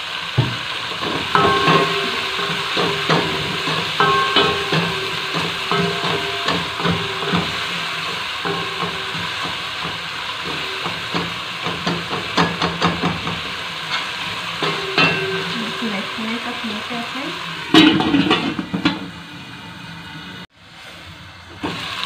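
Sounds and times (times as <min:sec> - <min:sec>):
meat sizzling in a wok: 0:00.0 - 0:22.0
spoon knocking against pan: 0:00.4 - 0:15.8
wooden spoon scraping a pan: 0:00.7 - 0:16.8.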